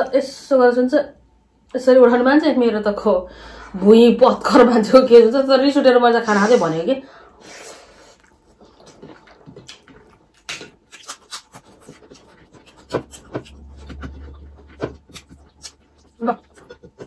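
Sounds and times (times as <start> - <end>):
lip smacks and chewing: 8.1 - 17.0.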